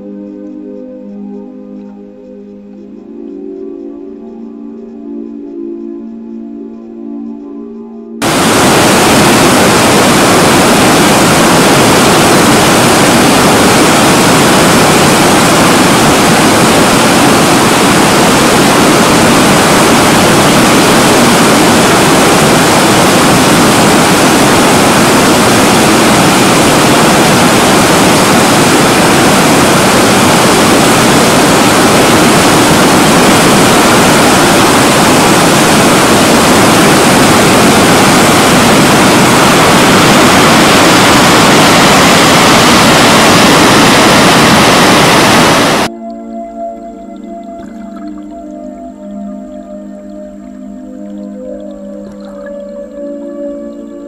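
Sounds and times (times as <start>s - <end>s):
water cascading over rocks: 8.2s - 45.9s, 46.9s - 48.9s, 49.6s - 54.0s.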